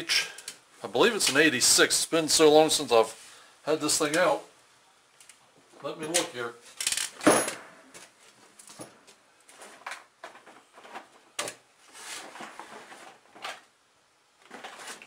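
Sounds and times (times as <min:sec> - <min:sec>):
rustling: 0:07.8 - 0:13.7, 0:14.4 - 0:15.0.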